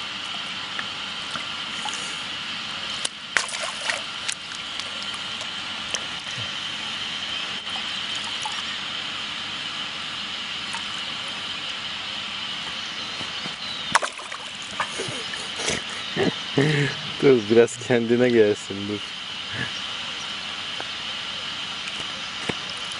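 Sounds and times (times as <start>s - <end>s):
water splashing: 3.0s - 6.6s, 13.9s - 15.6s.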